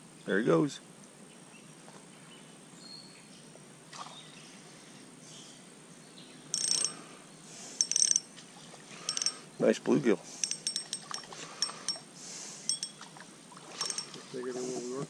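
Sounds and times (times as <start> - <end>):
fish and line rattling and rustling: 6.6 - 7.0, 7.8 - 9.5, 10.4 - 15.0.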